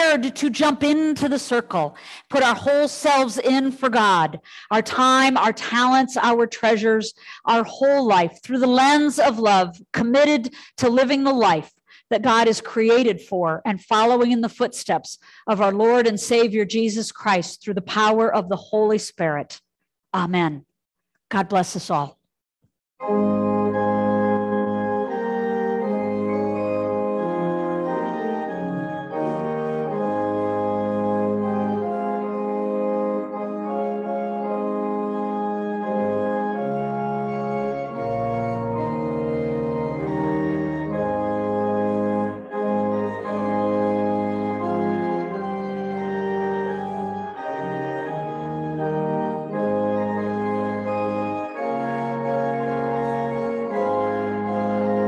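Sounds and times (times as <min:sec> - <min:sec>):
church organ chords: 0:23.0 - 0:55.0.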